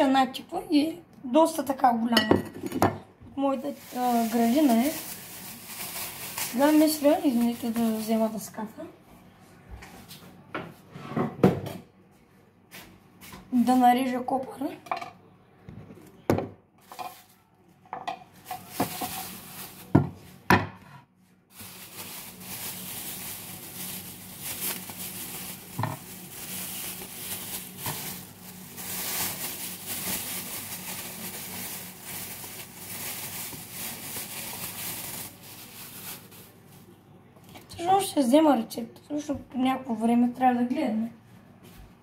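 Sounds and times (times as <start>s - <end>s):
plastic bag crinkling: 3.5s - 8.6s, 18.4s - 20.0s, 21.5s - 36.9s.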